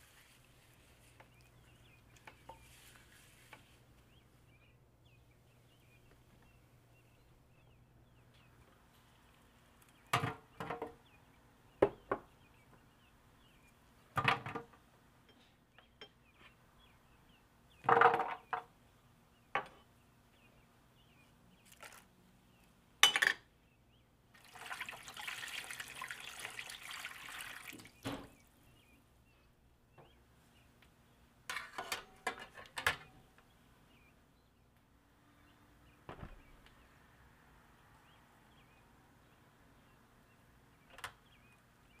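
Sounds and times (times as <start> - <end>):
water pouring: 24.4 - 28.1.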